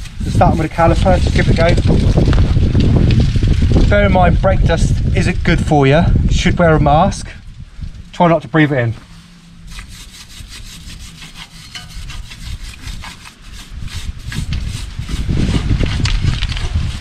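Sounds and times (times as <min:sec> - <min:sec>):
wire brush scrubbing metal: 0:09.6 - 0:16.0.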